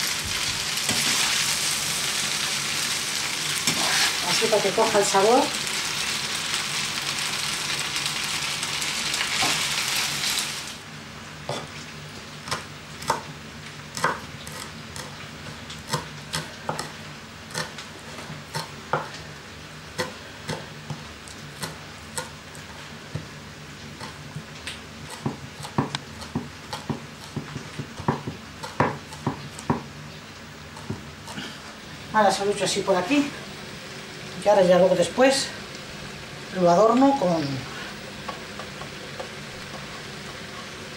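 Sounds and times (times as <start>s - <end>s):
food sizzling in a frying pan: 0.0s - 40.9s
knife chopping on wooden board: 14.0s - 15.1s, 15.9s - 16.9s, 25.1s - 29.9s.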